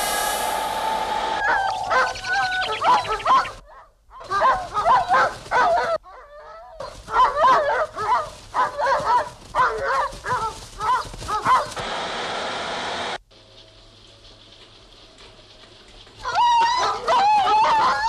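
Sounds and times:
harsh rushing noise: 0:00.0 - 0:02.9
dogs barking: 0:01.3 - 0:11.8, 0:16.2 - 0:18.0.

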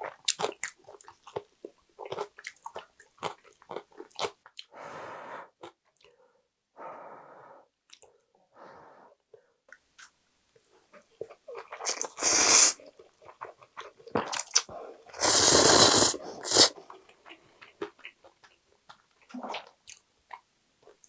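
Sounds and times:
soft wet chewing: 0:00.0 - 0:04.8, 0:09.7 - 0:12.2, 0:12.8 - 0:15.1, 0:16.4 - 0:21.0
noodles being slurped: 0:15.2 - 0:16.8.

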